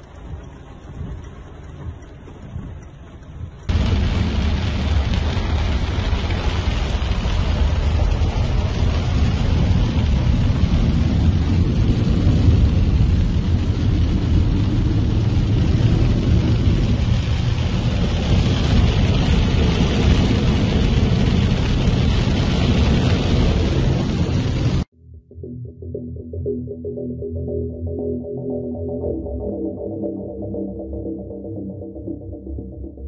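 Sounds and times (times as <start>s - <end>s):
heavy rain on a car: 0.0s - 24.9s
low rumble of car driving: 0.0s - 24.9s.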